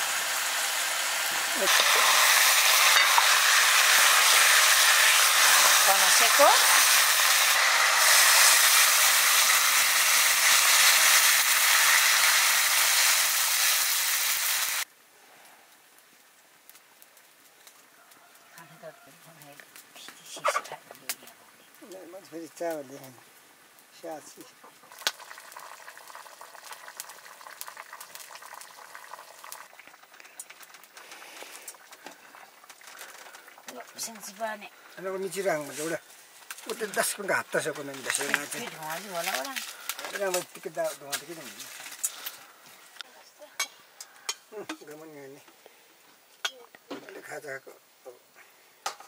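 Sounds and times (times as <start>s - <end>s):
food sizzling in hot oil: 0.0s - 14.9s, 24.0s - 42.5s
crackles and pops: 1.2s - 18.7s, 19.4s - 22.0s, 22.6s - 34.8s, 35.4s - 47.3s
pot of food bubbling: 24.5s - 34.4s.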